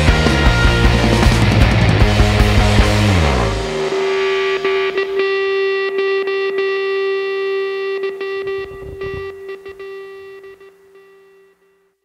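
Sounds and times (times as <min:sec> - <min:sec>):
distorted electric guitar rock music: 0:00.0 - 0:11.6.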